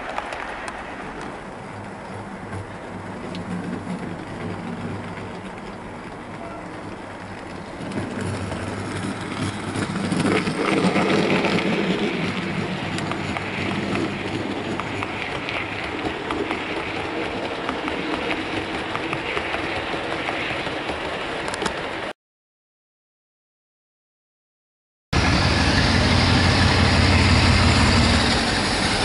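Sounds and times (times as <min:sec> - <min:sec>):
small wheel clicks: 0:00.0 - 0:21.9
model train motor hum: 0:25.2 - 0:29.0.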